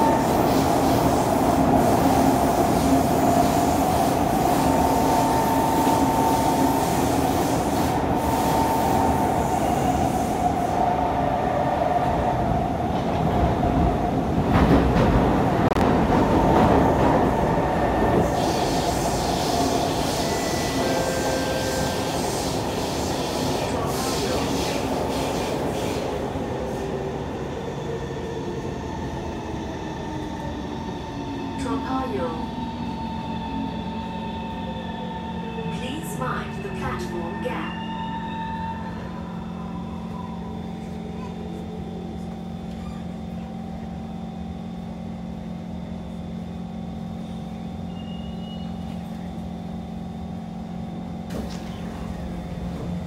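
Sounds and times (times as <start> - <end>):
metro train rumbling in tunnel: 0.0 - 53.0
train doors opening: 12.9 - 26.7, 51.2 - 53.0.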